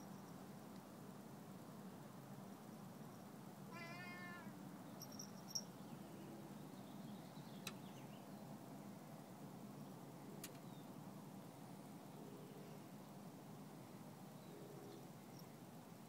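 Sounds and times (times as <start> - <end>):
cat meowing faintly: 3.7 - 4.6.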